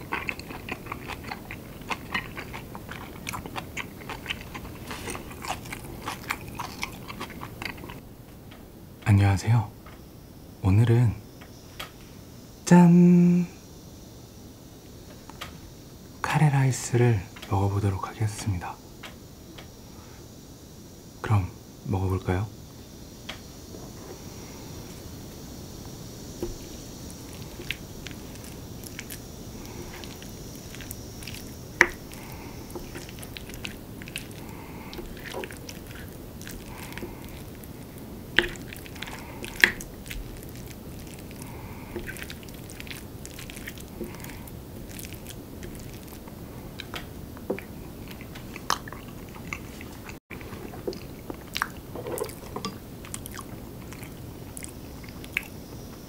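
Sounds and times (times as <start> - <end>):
chewing and mouth sounds: 0.0 - 8.0, 25.8 - 55.6.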